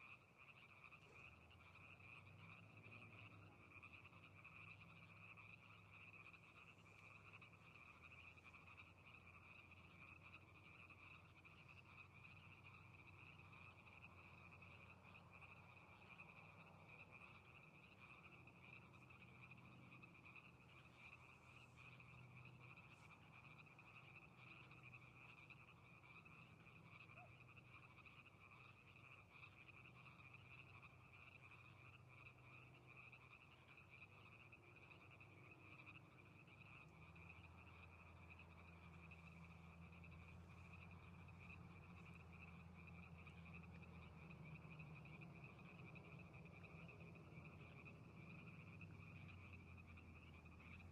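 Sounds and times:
chorus of frogs calling: 0.0 - 50.9.

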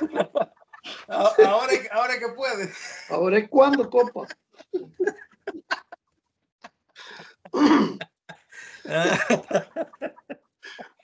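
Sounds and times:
person's vocal bursts: 8.9 - 9.2.

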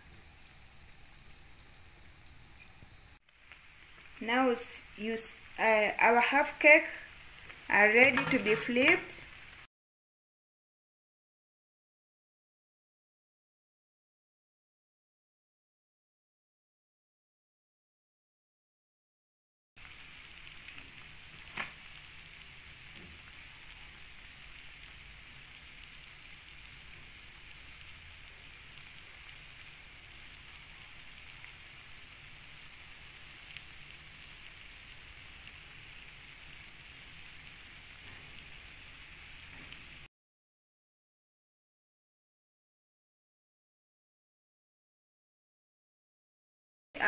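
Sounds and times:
oil sizzling in a pan: 0.0 - 9.7, 19.8 - 40.1.

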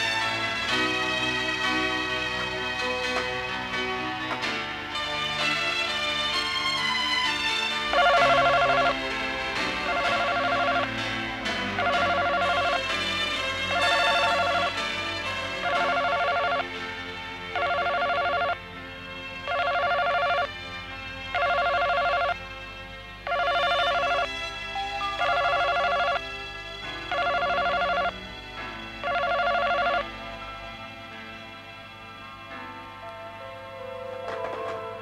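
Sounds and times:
soft background music: 0.0 - 35.0
telephone ringing: 7.9 - 16.8, 17.5 - 18.6, 19.4 - 20.5, 21.3 - 22.4, 23.2 - 26.3, 26.9 - 28.2, 29.0 - 30.2.

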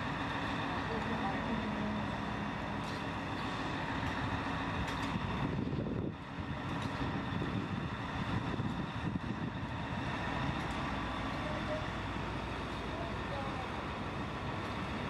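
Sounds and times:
diesel engine rumbling: 0.0 - 15.0.

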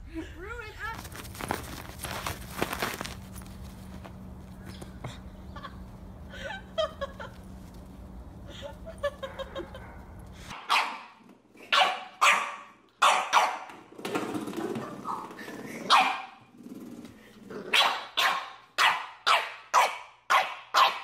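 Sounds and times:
faint steady hum: 0.0 - 10.5
dog barking sharply: 10.5 - 13.7, 17.7 - 21.0.

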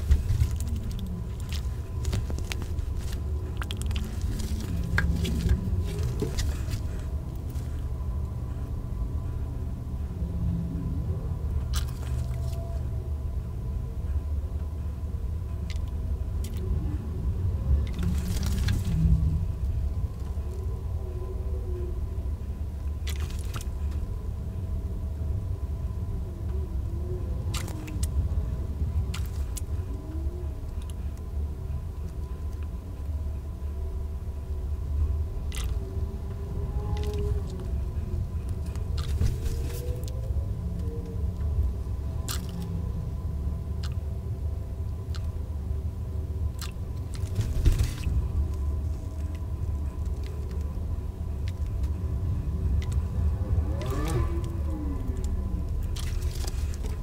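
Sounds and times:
wet fabric squelching: 0.0 - 7.7
low rumble: 0.0 - 57.0
steady low hum: 0.0 - 57.0.

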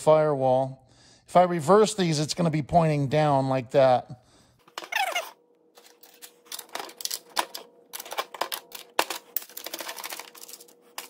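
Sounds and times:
small metal parts clinking: 5.8 - 11.0.

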